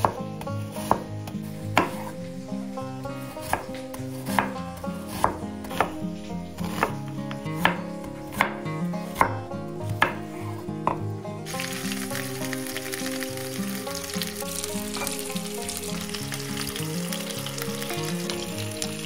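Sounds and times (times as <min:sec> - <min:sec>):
knife chopping on wooden board: 0:00.0 - 0:02.2, 0:03.4 - 0:11.1.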